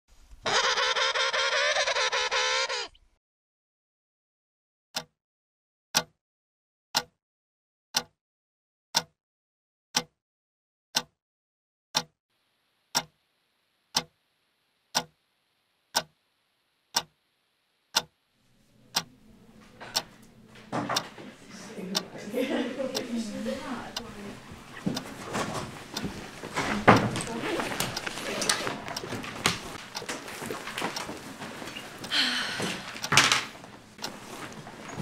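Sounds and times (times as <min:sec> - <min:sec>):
clock ticking: 0:08.0 - 0:08.2, 0:09.0 - 0:09.2, 0:10.0 - 0:10.2, 0:12.0 - 0:12.2, 0:12.9 - 0:13.2, 0:13.9 - 0:14.2, 0:14.9 - 0:15.2, 0:15.9 - 0:16.2, 0:16.9 - 0:17.2, 0:17.9 - 0:18.1, 0:18.9 - 0:35.0
faint low room noise: 0:12.3 - 0:35.0.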